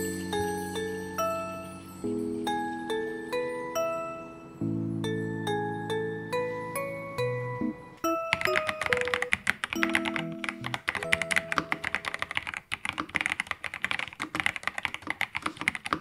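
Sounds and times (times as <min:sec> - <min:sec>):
soft melodic background music: 0:00.0 - 0:12.3
mechanical keyboard typing: 0:08.3 - 0:16.0.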